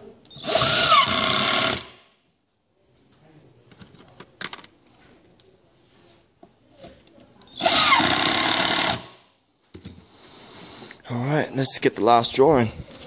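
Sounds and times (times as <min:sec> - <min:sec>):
cordless drill driving screw: 0:00.3 - 0:02.0, 0:07.6 - 0:09.1.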